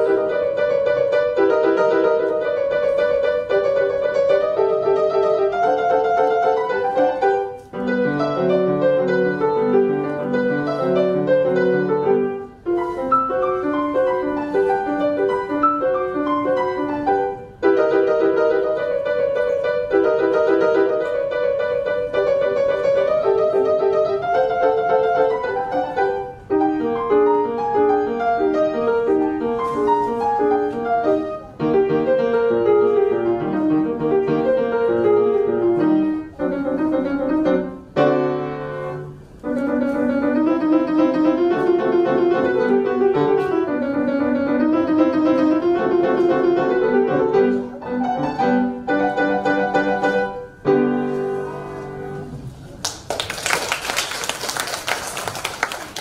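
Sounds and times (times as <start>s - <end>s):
classical piano piece: 0.0s - 56.0s
audience applause: 52.8s - 56.0s.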